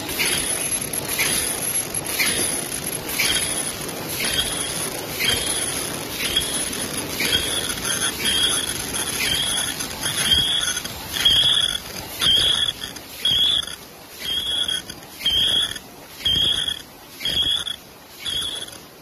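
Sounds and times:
machine stroke high-pitched sound: 0:00.0 - 0:19.0.

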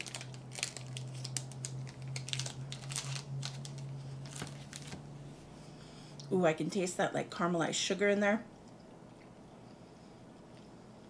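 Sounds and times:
plastic wrappers crinkling: 0:00.0 - 0:05.0
steady low hum: 0:00.0 - 0:11.0.

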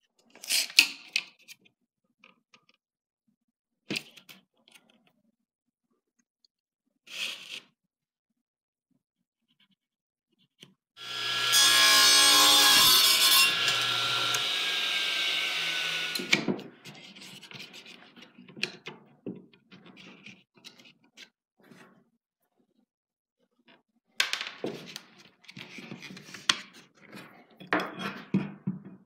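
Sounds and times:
electric power saw cutting wood: 0:11.0 - 0:16.8.

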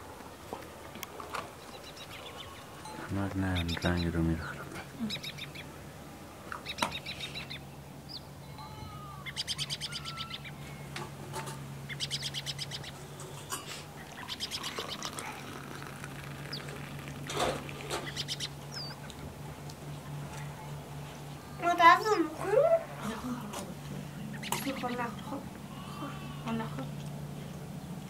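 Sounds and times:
steady low hum: 0:00.0 - 0:28.0
small birds trilling: 0:01.5 - 0:28.0.

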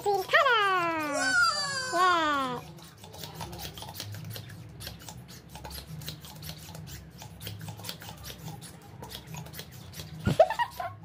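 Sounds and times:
rubber balloon squeaking: 0:00.8 - 0:02.6.

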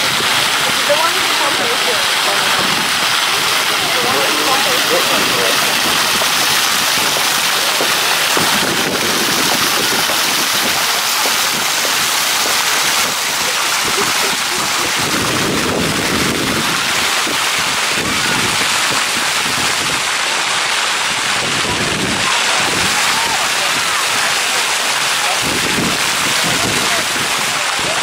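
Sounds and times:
fountain water splashing: 0:00.0 - 0:28.0.

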